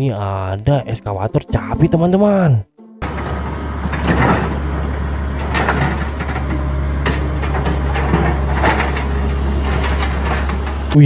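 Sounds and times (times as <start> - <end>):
excavator diesel engine running: 3.0 - 11.0
metal clanks and knocks: 3.0 - 11.0.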